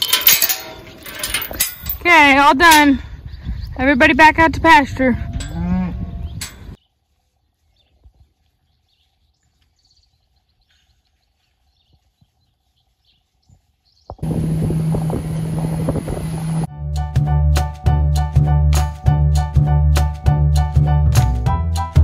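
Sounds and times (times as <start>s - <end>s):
wind on microphone: 1.5s - 6.8s, 14.0s - 16.7s
faint birds chirping: 2.9s - 4.2s, 5.1s - 16.6s
moving vehicle rushing hum: 14.2s - 16.7s.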